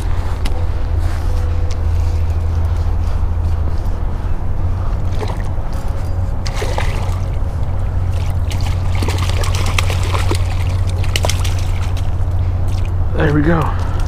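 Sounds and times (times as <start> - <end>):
steady low rumble: 0.0 - 14.0
fish thrashing and splashing: 5.0 - 13.1.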